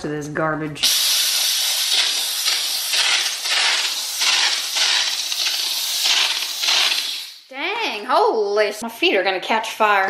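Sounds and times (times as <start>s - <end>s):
steam cleaner hissing: 0.8s - 7.5s.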